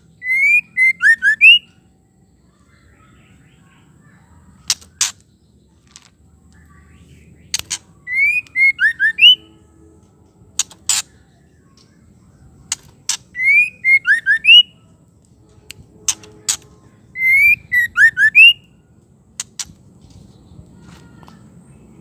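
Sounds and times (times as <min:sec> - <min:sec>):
bird whistling calls: 0:00.1 - 0:01.8, 0:08.0 - 0:09.5, 0:13.3 - 0:14.7, 0:17.2 - 0:18.7
sharp clicks: 0:07.5 - 0:08.6, 0:10.6 - 0:11.1, 0:19.4 - 0:19.8.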